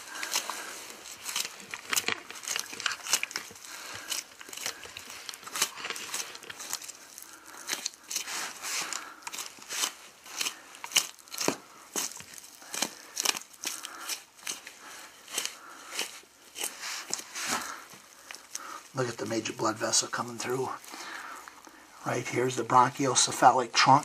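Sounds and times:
tearing and crackling: 0.0 - 24.0
knife cutting through meat: 0.1 - 17.7.

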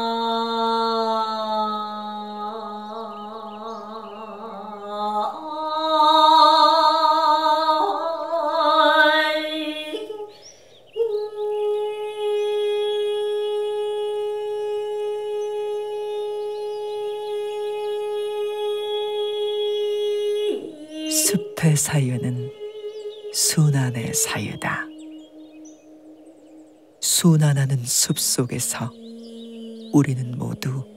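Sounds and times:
sustained wavering music tones: 7.1 - 30.9.

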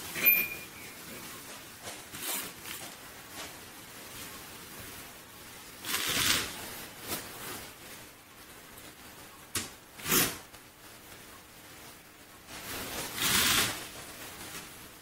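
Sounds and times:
object rustling and scraping: 0.0 - 5.0.

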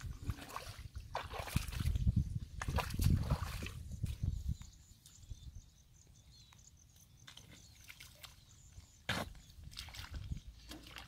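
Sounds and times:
footsteps squelching in mud: 0.0 - 4.2, 7.2 - 11.0.

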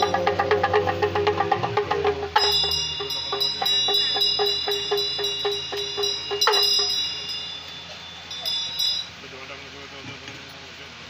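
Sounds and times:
hand bell ringing: 0.0 - 0.4, 2.4 - 9.2
hand drum rattling: 0.0 - 9.2.

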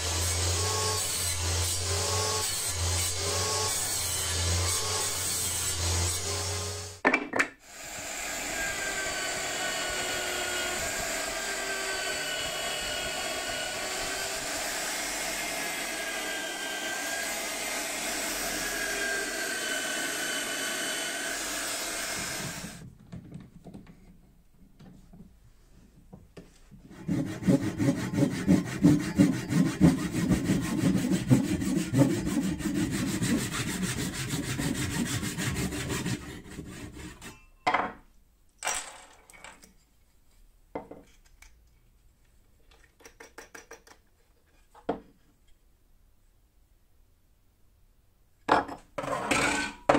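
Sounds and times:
hand saw cutting wood: 0.0 - 7.0, 7.6 - 22.8, 26.9 - 37.5.

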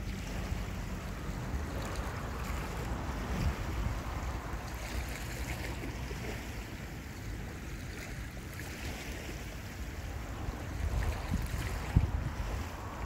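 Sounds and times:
wind buffeting microphone: 0.0 - 7.6, 8.2 - 13.0.

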